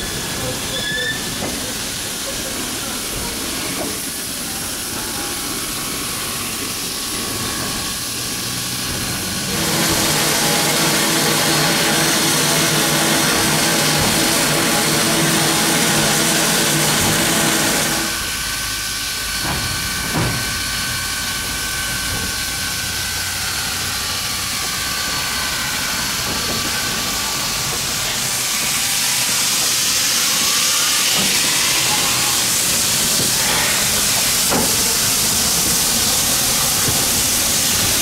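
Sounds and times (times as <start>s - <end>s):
steam hissing: 0.0s - 38.0s.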